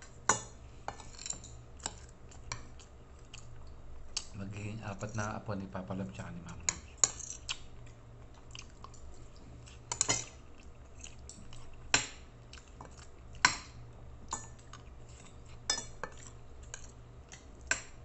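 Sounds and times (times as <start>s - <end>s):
cutlery clinking on a plate: 9.9s - 10.4s.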